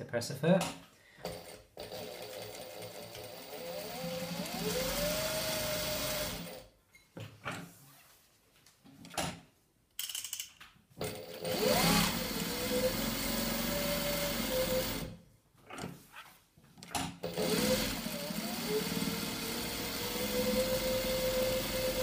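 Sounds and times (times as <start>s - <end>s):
industrial sewing machine stitching: 1.2s - 6.7s, 11.0s - 15.2s, 17.2s - 22.0s.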